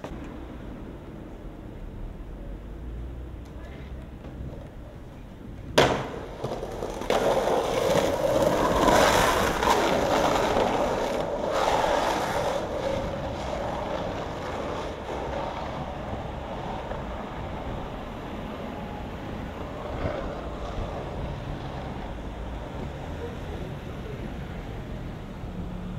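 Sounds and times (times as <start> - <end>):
skateboard wheels rolling on asphalt: 0.0 - 25.9
skateboard knock: 5.7 - 11.2.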